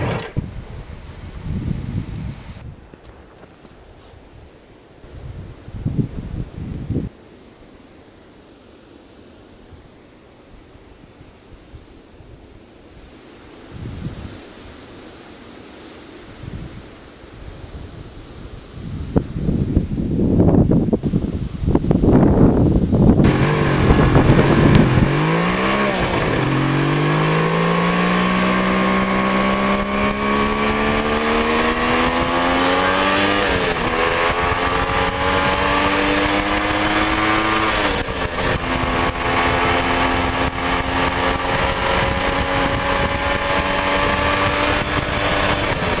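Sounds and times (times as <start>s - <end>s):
motorcycle engine revving through gears: 0.0s - 0.5s, 23.2s - 46.0s
wind buffeting microphone: 0.0s - 7.2s, 11.2s - 14.6s, 16.3s - 46.0s.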